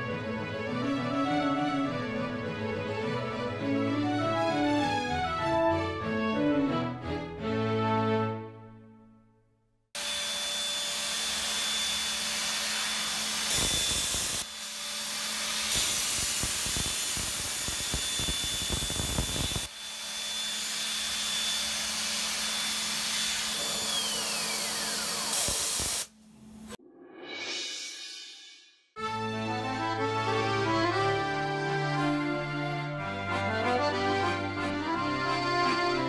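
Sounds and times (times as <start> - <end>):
milling spindle whining: 17.8 - 25.4.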